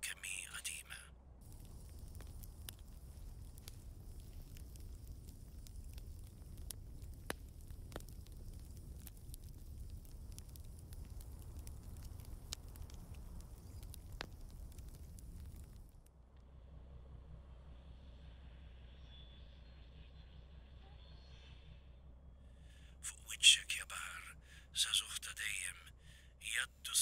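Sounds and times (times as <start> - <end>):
low rumble of fire: 0.3 - 27.0
fire crackling and popping: 1.4 - 16.2.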